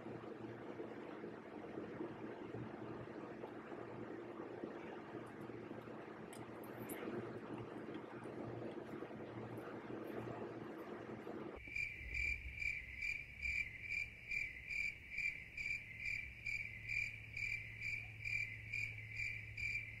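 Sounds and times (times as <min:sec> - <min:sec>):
breezy outdoor noise: 0:00.0 - 0:20.0
faint low hum: 0:00.0 - 0:20.0
cricket chirping: 0:11.6 - 0:20.0.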